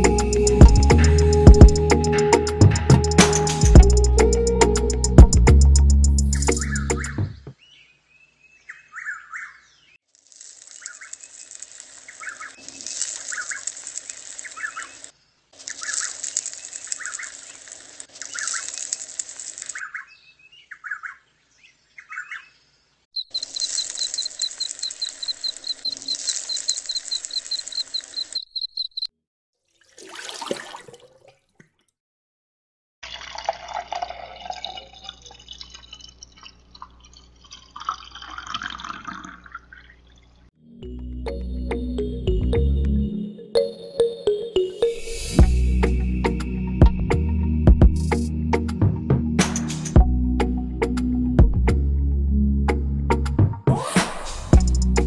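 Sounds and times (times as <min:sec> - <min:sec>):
birds chirping: 0:06.2 - 0:10.0, 0:12.0 - 0:17.6, 0:19.6 - 0:29.1
water trickling and splashing: 0:29.6 - 0:31.9, 0:33.0 - 0:40.4.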